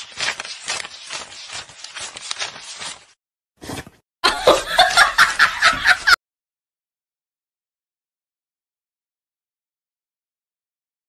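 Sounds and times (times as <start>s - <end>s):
banknotes being counted: 0.0s - 3.2s
loud laughter: 4.2s - 6.2s.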